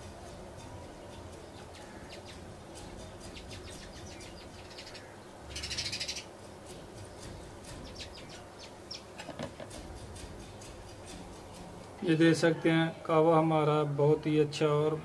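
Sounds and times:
rapid high chirping: 0.0 - 12.4.

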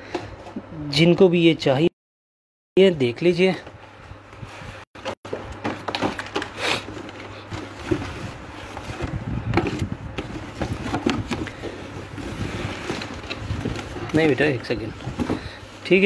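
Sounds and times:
cardboard box and plastic rustling: 5.0 - 16.0.

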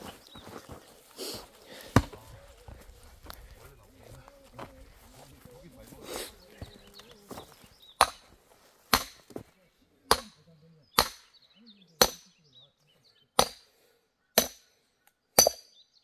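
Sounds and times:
axe chopping firewood: 1.8 - 2.3, 8.0 - 9.4, 10.1 - 10.4, 11.0 - 11.3, 12.0 - 12.3, 13.4 - 13.7, 14.4 - 14.7, 15.4 - 15.7.

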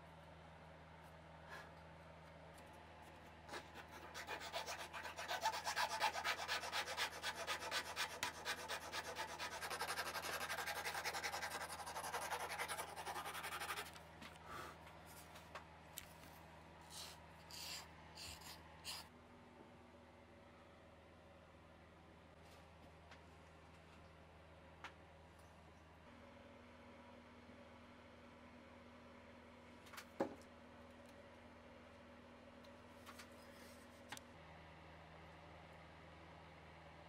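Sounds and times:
file rasping wood: 3.5 - 14.0.

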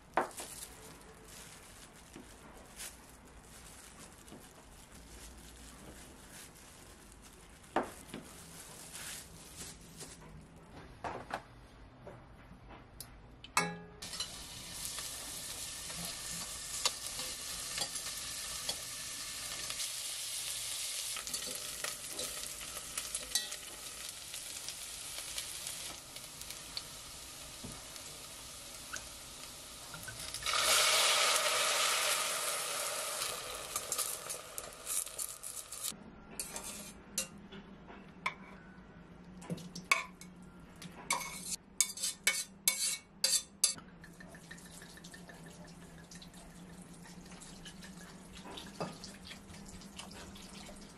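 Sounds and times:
vegetables sizzling in oil: 14.0 - 35.9
spatula scraping metal pot: 36.4 - 37.0, 41.1 - 43.8.

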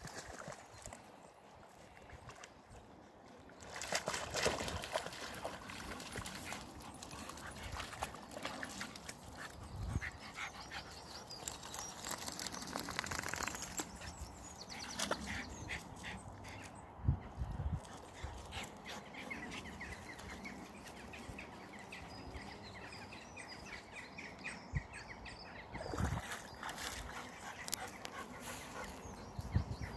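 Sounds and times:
dogs splashing in water: 0.0 - 1.0, 3.6 - 9.5, 25.8 - 29.0.

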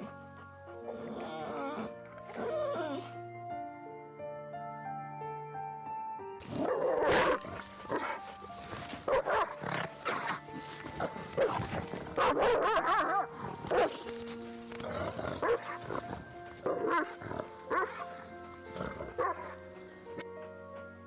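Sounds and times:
background music with held notes: 0.0 - 21.0
dog barking and yelping: 6.5 - 8.3, 9.0 - 14.2, 14.9 - 19.6.

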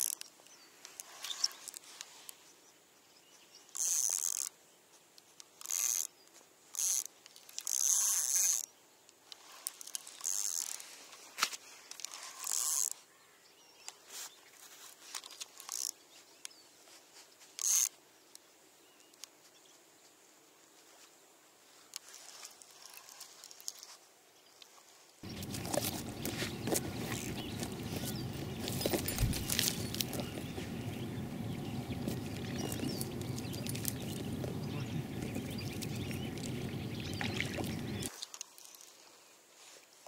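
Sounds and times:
fishing reel whirring: 7.6 - 8.6, 10.2 - 10.8, 25.3 - 30.6.

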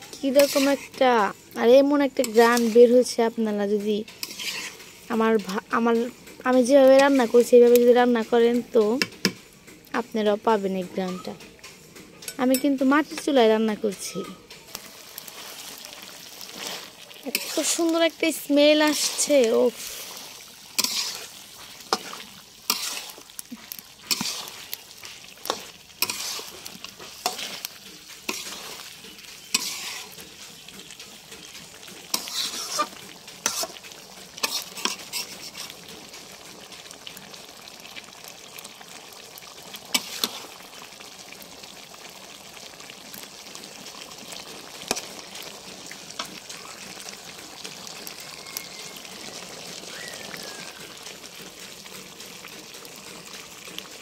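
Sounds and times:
metal spatula scraping a pan: 0.0 - 7.8, 13.8 - 35.9, 39.9 - 40.5
curry sizzling in a metal pan: 0.0 - 54.0.

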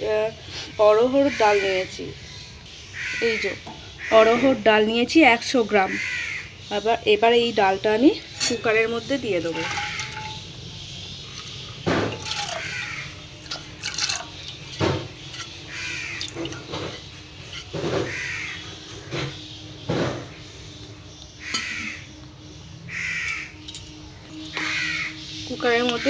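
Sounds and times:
crows cawing: 1.2 - 2.0, 2.9 - 4.7, 5.8 - 6.7, 9.4 - 19.4, 21.4 - 22.2, 22.9 - 23.6, 24.5 - 25.3.

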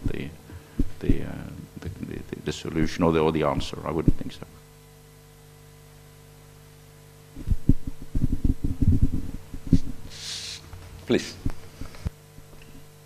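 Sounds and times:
mains hum: 0.0 - 13.0
microphone handling thumps: 0.8 - 1.3, 7.4 - 10.1
short hiss: 9.7 - 10.7.

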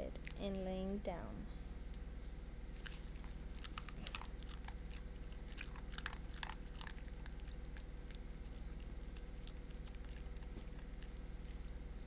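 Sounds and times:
dog chewing crunchy food: 2.7 - 12.0.

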